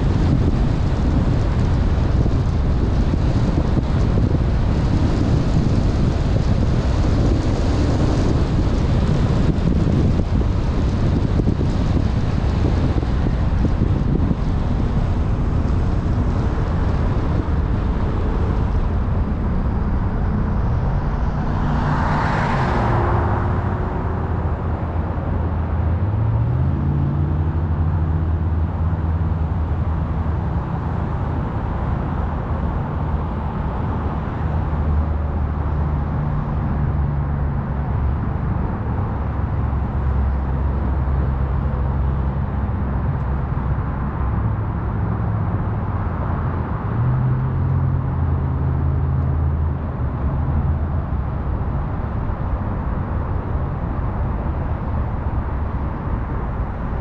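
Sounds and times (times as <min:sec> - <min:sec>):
car engine: 0:00.0 - 0:57.0
tyre noise on road: 0:00.0 - 0:57.0.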